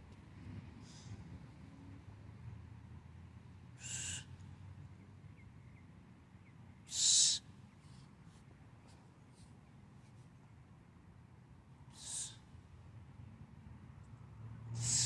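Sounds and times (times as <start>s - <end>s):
man exhaling forcefully: 14.8s - 15.0s.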